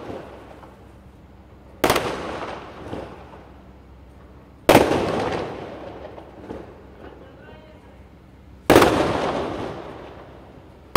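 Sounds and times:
fireworks bangs with echo: 0.0s - 0.8s, 1.8s - 3.6s, 4.6s - 7.6s, 8.6s - 10.9s.

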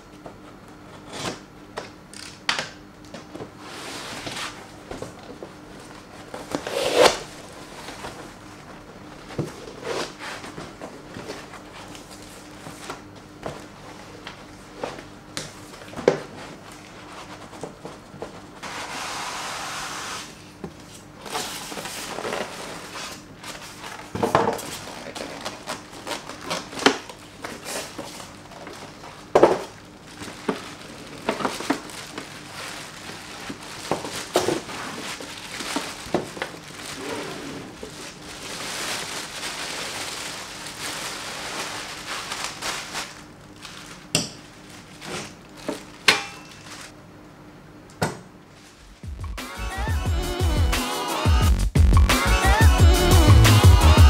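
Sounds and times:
plastic bag rustling: 21.2s - 47.0s.

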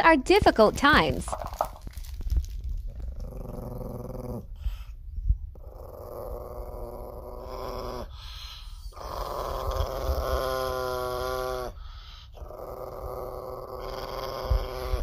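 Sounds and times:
small dog growling: 2.9s - 4.9s, 5.5s - 15.0s.

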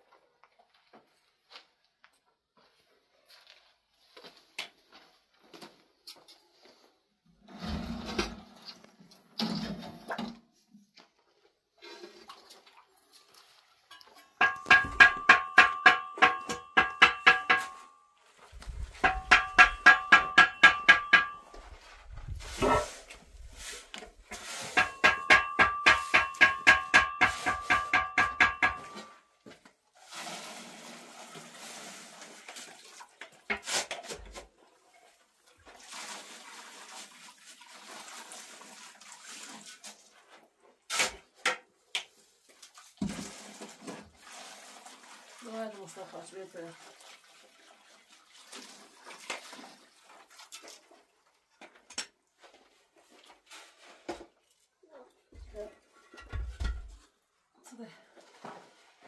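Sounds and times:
sharp knocks: 14.4s - 17.9s, 19.0s - 21.5s, 24.8s - 29.1s
wooden pole striking metal container: 14.4s - 18.0s, 18.6s - 23.5s, 24.2s - 29.2s
shovel scraping sand and cement: 21.6s - 26.4s, 27.0s - 28.3s.

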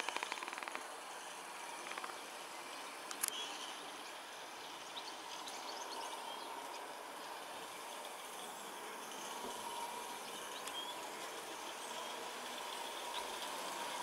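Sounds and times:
model train clicking on track: 0.0s - 14.0s
outdoor background hiss: 0.0s - 14.0s
faint bird chirps: 3.2s - 4.0s.

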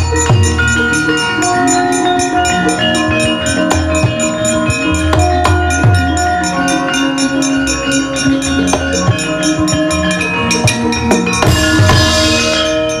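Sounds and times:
low drum beats: 0.0s - 1.4s, 8.6s - 13.0s
gamelan music: 0.0s - 13.0s.

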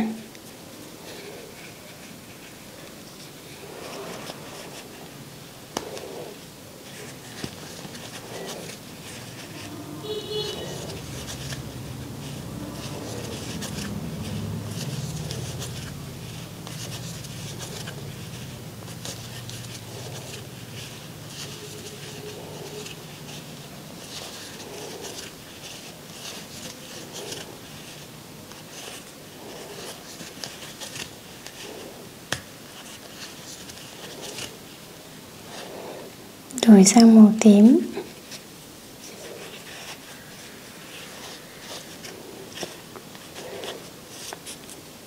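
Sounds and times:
yarn rustling on crochet hook: 0.0s - 45.0s
low hum: 8.2s - 24.0s.

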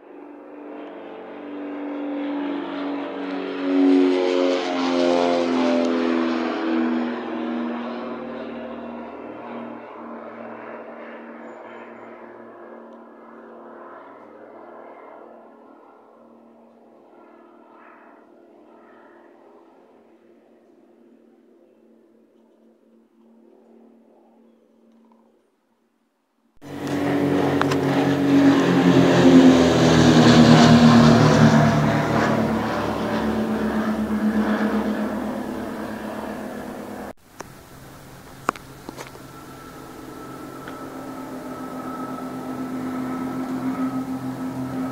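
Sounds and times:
twin-engine propeller aircraft drone: 0.0s - 25.6s, 26.6s - 44.9s.

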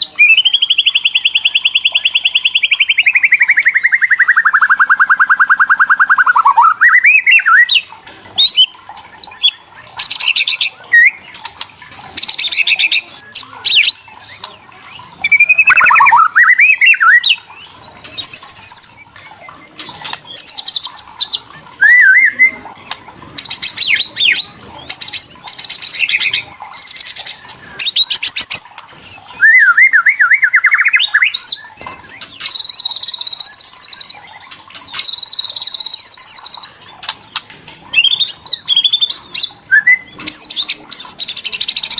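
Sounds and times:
bird whistled notes: 21.8s - 22.6s, 29.4s - 31.5s, 38.8s - 41.1s.

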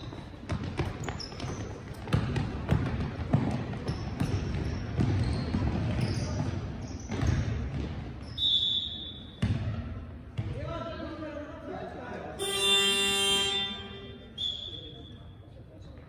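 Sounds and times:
players' footsteps: 0.0s - 8.2s
basketball bouncing: 0.0s - 8.3s, 9.4s - 10.6s
shoes squeaking on floor: 0.0s - 9.4s.

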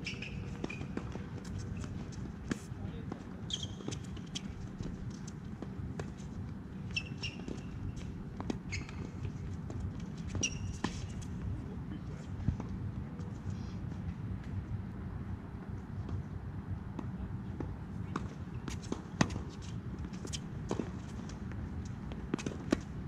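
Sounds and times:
shoe squeaks on court: 0.0s - 2.2s, 3.4s - 4.7s, 6.8s - 8.0s, 8.6s - 9.4s, 10.2s - 11.3s
low background hum: 0.0s - 23.0s.

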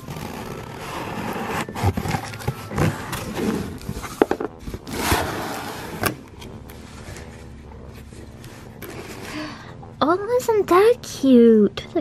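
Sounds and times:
cardboard scraping and rustling: 0.0s - 9.3s.

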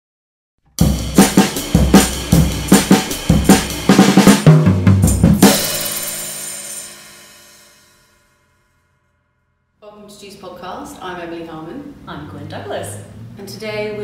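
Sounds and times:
drum kit beat: 0.8s - 8.1s
cymbal crash: 0.8s - 9.0s.

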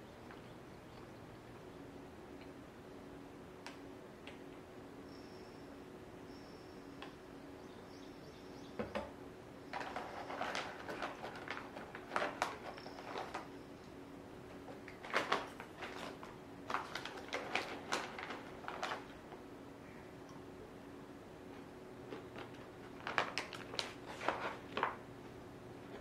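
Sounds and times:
snack pouch crinkling: 14.8s - 19.2s.

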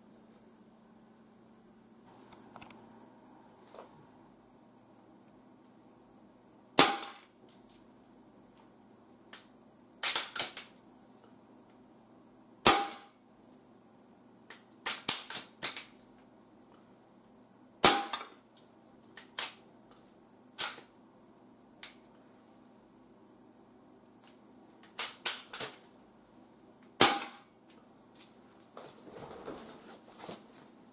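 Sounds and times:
air rifle shots: 27.0s - 27.5s.

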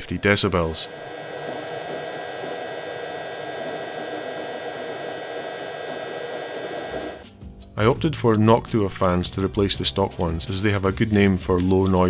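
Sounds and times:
cooling fans whirring: 0.0s - 7.2s.

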